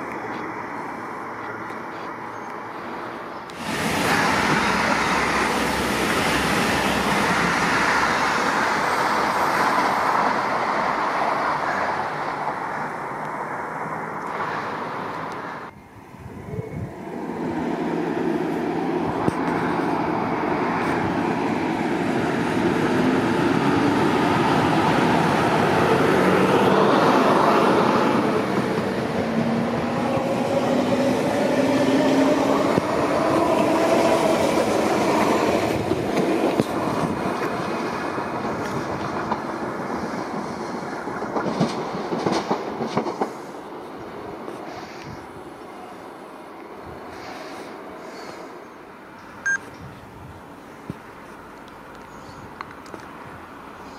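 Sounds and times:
high-speed train passing: 0:00.0 - 0:53.9
electric train whining: 0:03.5 - 0:14.4, 0:15.0 - 0:44.2.

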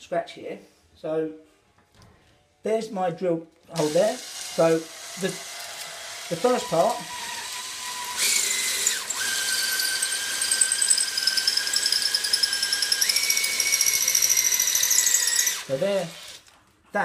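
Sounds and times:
cordless drill boring into wall: 0:03.8 - 0:16.5.

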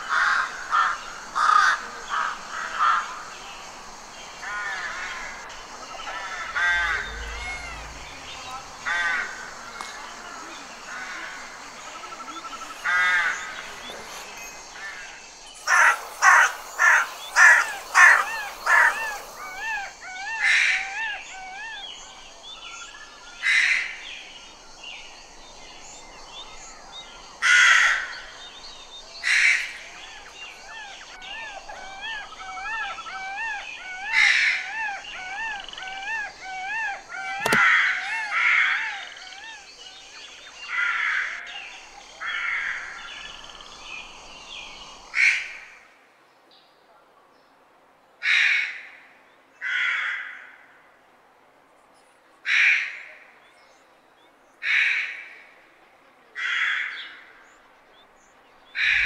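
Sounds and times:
crows cawing: 0:00.0 - 0:10.2, 0:10.8 - 0:21.7, 0:27.4 - 0:28.4, 0:49.6 - 0:50.7, 0:58.8 - 0:59.0
soft wavering bird calls: 0:00.0 - 0:45.9, 0:56.8 - 0:59.0
sharp click: 0:37.4 - 0:37.7.

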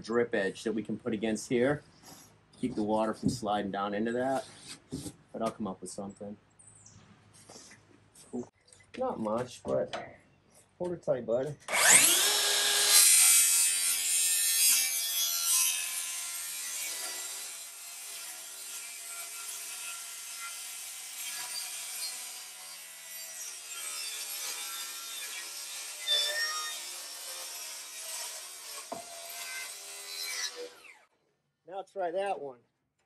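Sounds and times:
circular saw cutting wood: 0:11.6 - 0:31.1.

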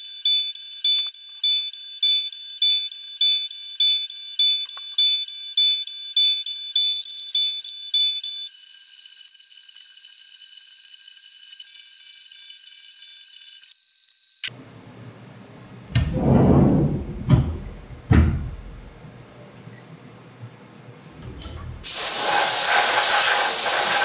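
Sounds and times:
enclosure door sliding open: 0:15.9 - 0:18.9, 0:21.1 - 0:21.8
short knocks: 0:16.0 - 0:18.9
coolant spray hissing: 0:21.8 - 0:24.0.

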